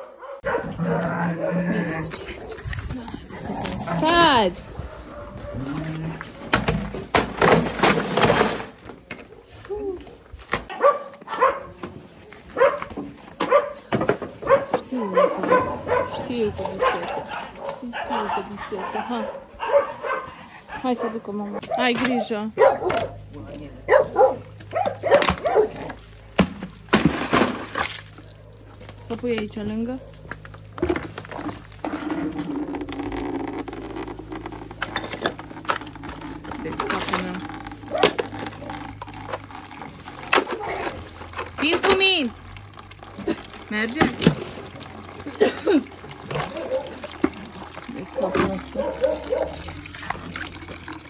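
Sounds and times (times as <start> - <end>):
dogs barking: 0.0 - 2.7, 3.6 - 6.5, 10.7 - 11.8, 12.4 - 26.4, 28.0 - 30.7, 37.7 - 41.6, 46.2 - 50.1
water splashing in buckets: 0.4 - 51.0
ice knocking against bucket: 5.7 - 9.3, 24.5 - 51.0.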